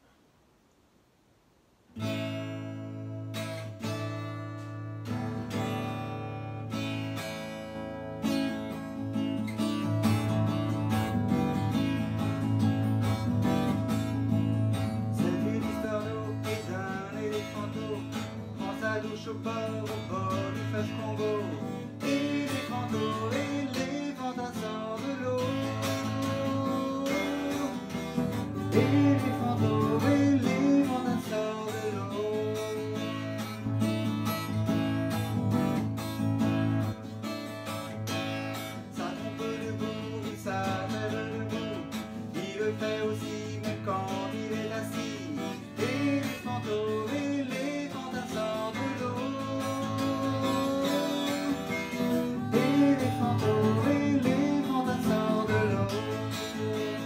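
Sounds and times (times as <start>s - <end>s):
acoustic guitar strumming: 2.0s - 57.0s
man singing: 14.7s - 33.7s, 38.6s - 57.0s.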